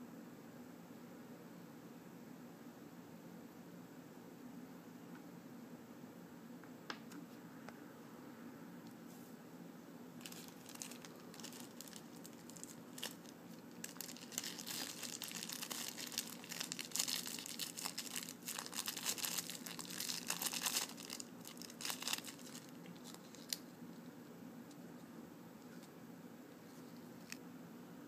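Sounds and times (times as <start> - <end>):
plastic bag and paper crinkling: 10.2 - 23.7.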